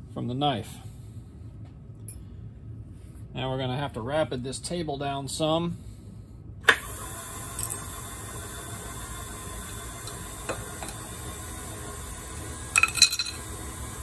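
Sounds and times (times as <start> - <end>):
milling machine drive running: 6.7 - 14.0.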